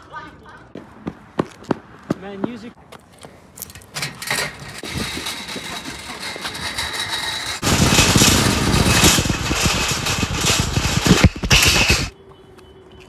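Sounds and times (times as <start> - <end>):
shopping trolley rattling on asphalt: 3.7 - 12.1.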